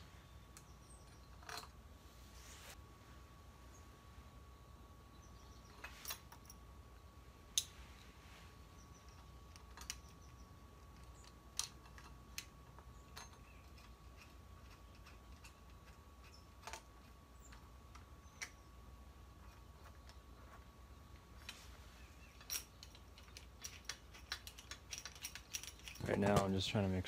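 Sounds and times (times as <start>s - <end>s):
small metal parts clicking: 5.6s - 6.6s, 8.8s - 18.7s, 22.2s - 26.5s.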